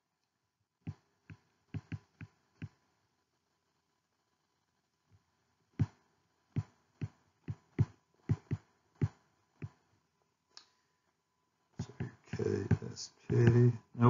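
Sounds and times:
stylus tapping on tablet screen: 0.9 - 2.8, 5.8 - 9.8, 11.8 - 13.8.

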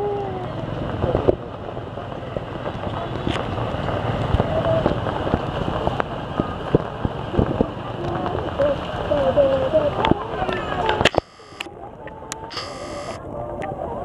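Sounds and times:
faint distant voice: 7.4 - 14.0
scattered clicks: 10.8 - 11.7, 12.3 - 13.2.

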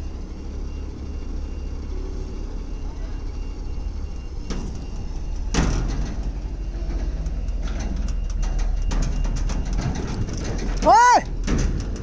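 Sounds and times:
diesel truck engine running: 0.0 - 12.0
loud metal clank: 5.5 - 12.0.

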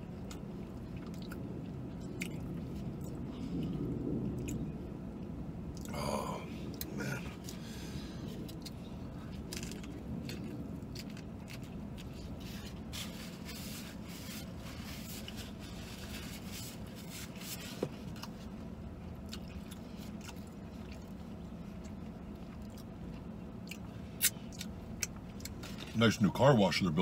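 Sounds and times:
man chewing crispy food: 0.0 - 26.0
steady low hum: 0.0 - 27.0.

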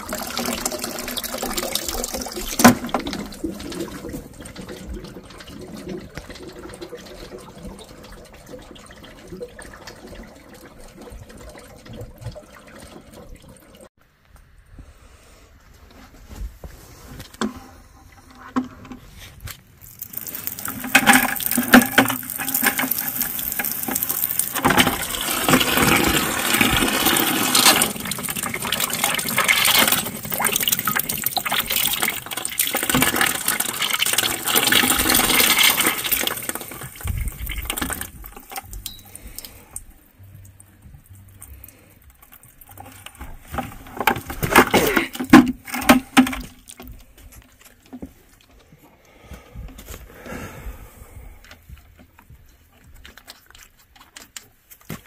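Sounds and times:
water gushing and splashing: 0.0 - 13.9, 19.8 - 40.2.

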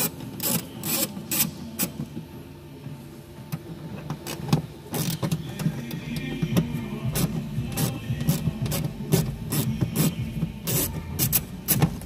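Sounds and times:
ratchet clicking and rasping: 0.0 - 1.9, 7.1 - 11.9
steady low hum: 0.0 - 12.0.

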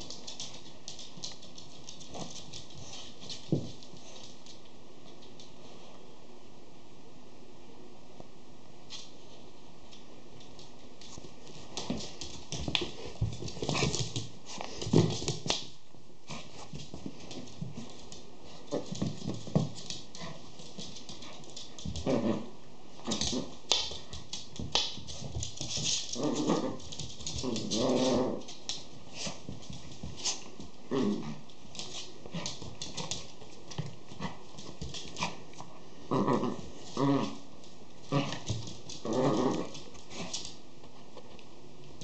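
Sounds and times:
puppies growling: 26.1 - 28.5, 35.2 - 37.5, 38.1 - 40.3.

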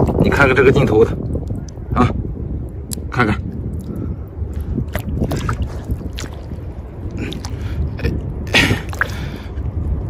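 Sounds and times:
wind noise on microphone: 0.0 - 10.0
hand splashing in shallow water: 4.9 - 7.6.

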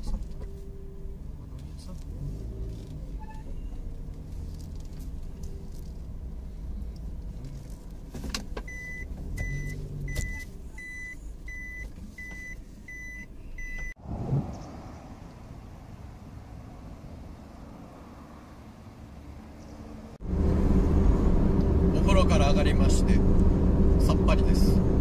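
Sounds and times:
van engine rumbling: 0.0 - 25.0
electronic warning beeps: 8.7 - 14.0.

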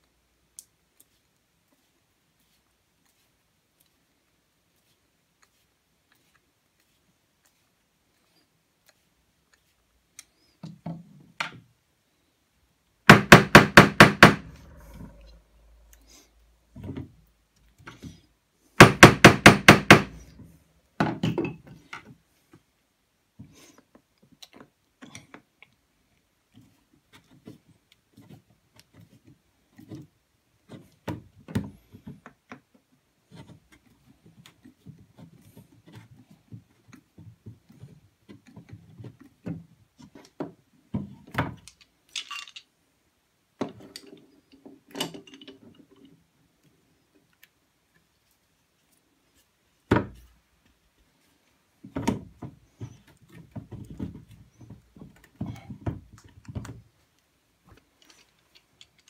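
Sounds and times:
loud wooden knock: 13.1 - 14.7, 18.8 - 20.2.

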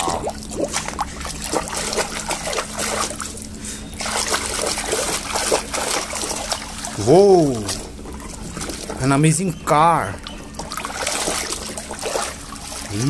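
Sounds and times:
hand sloshing through muddy water: 0.0 - 9.2, 10.7 - 13.0.

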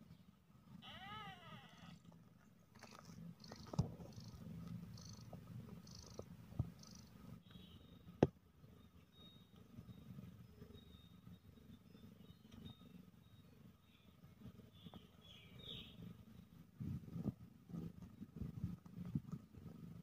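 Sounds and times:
cat purring: 0.6 - 7.2.

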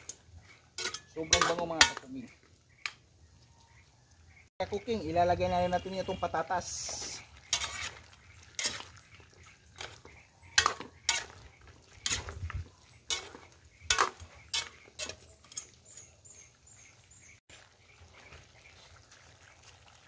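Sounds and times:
metal spatula scraping a wok: 0.0 - 2.1, 6.7 - 16.4.

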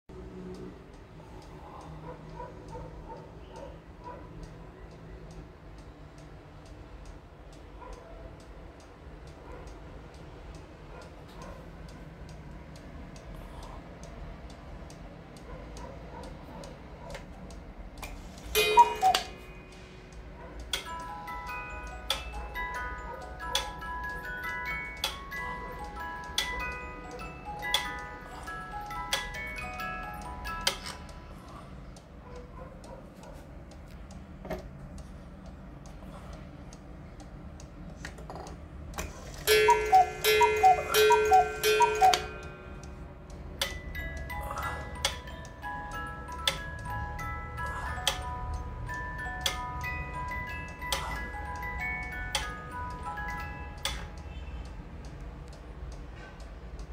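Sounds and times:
clock ticking: 0.2 - 56.9
cuckoo clock calls: 18.0 - 31.3, 39.0 - 55.8
cuckoo clock whistle call: 18.5 - 19.6, 39.2 - 42.8.

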